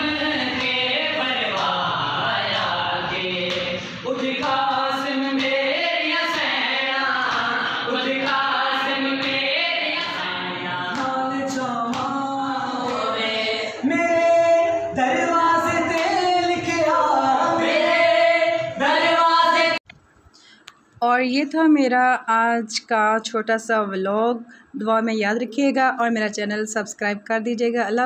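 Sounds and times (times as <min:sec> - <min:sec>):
group chanting a lament: 0:00.0 - 0:19.8.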